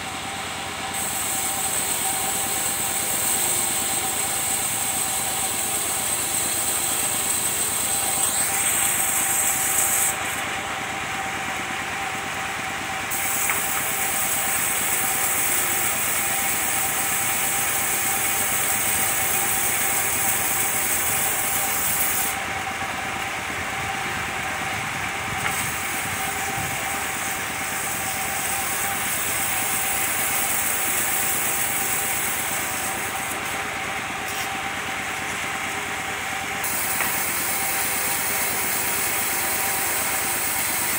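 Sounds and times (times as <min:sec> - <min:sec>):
circular sawmill engine whine: 0:00.0 - 0:40.9
saw blade ripping wood: 0:01.0 - 0:10.3, 0:13.1 - 0:22.4, 0:25.4 - 0:33.6, 0:36.6 - 0:40.9.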